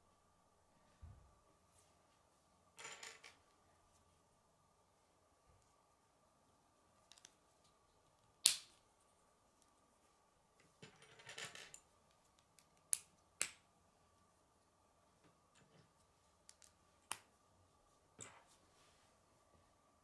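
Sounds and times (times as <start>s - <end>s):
plastic pieces snapping together: 8.4s - 8.8s.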